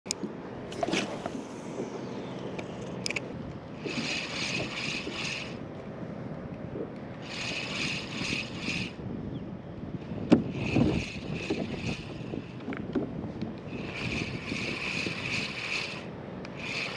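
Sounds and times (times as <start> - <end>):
wind: 0.0 - 16.9
spinning reel whirring: 3.8 - 5.6, 7.2 - 9.0, 10.1 - 12.7, 13.6 - 16.9.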